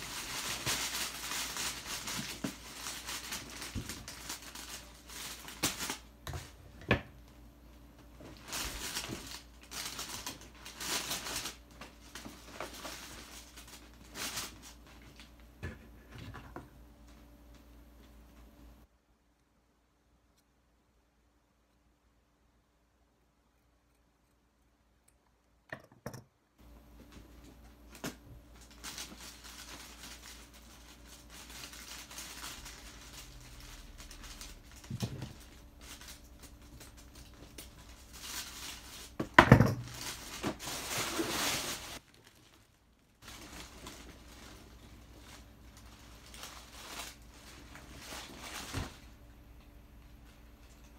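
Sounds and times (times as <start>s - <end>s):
cellophane crinkling: 0.0s - 6.7s, 8.0s - 15.6s, 26.6s - 49.2s.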